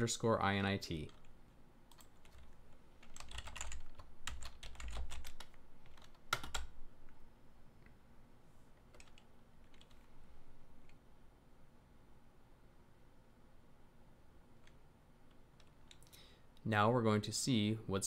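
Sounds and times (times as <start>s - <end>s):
typing on computer keyboard: 1.0s - 1.3s, 1.9s - 6.8s, 8.9s - 10.0s.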